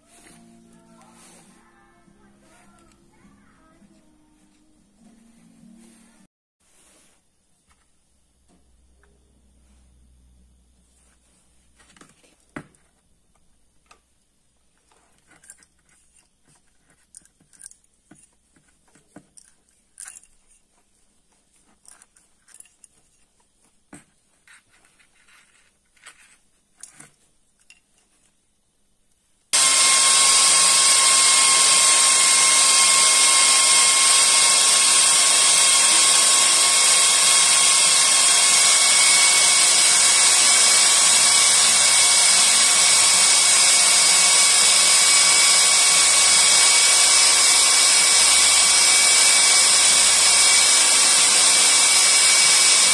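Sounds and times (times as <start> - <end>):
electric drill whining: 0.0 - 3.9, 29.5 - 52.9.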